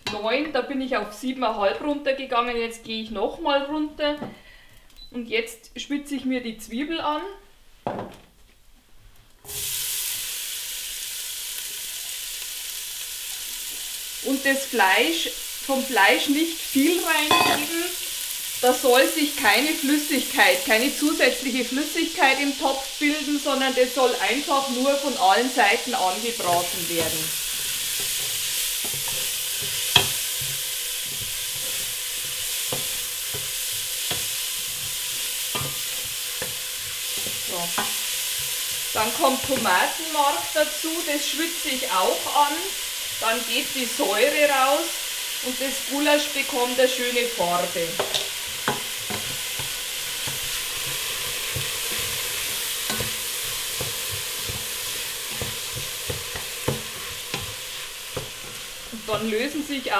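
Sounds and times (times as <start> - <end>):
onions sizzling in hot oil: 9.4 - 59.9
wooden spoon scraping a pot: 26.4 - 39.7, 48.0 - 59.3
wooden spoon knocking pot: 52.9 - 58.4.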